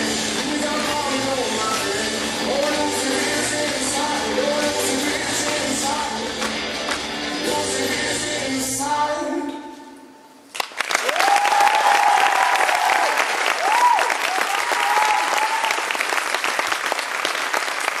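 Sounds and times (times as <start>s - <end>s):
music: 0.0s - 10.1s
audience applause: 10.5s - 18.0s
crowd whooping: 11.0s - 16.0s.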